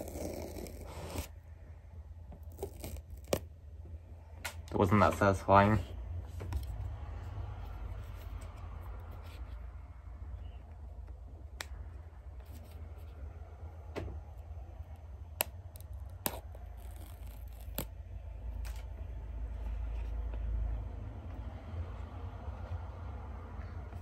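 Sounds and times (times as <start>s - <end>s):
paper strip tearing: 15.8s - 17.9s.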